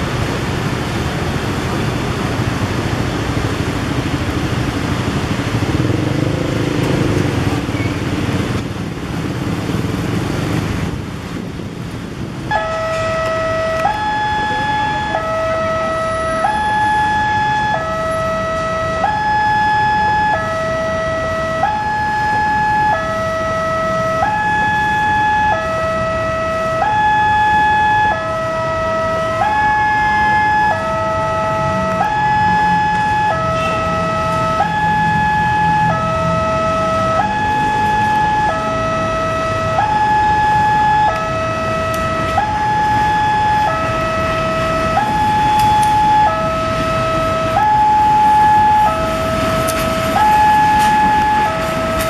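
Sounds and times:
two-tone crossing alarm: 12.4s - 52.0s.

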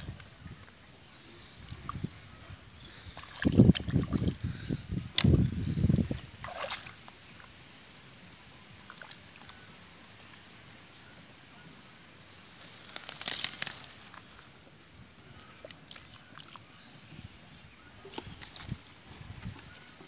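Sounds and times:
hands tearing grass stems: 12.6s - 14.3s.

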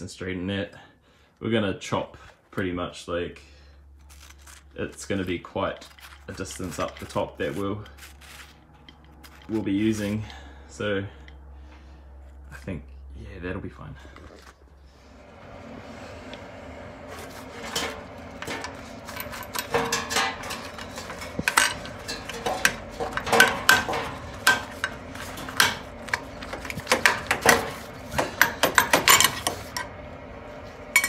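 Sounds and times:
metallic clanks and clicks: 17.7s - 29.9s.

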